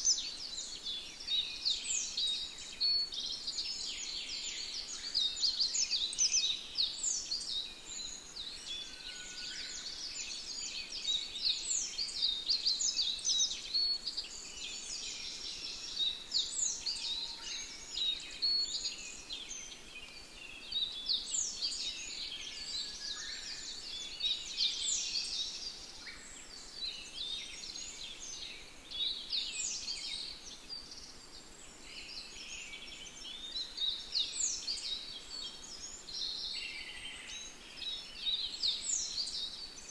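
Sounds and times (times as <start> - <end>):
small birds chirping: 0.0 - 39.9
steady outdoor hiss: 0.0 - 39.9.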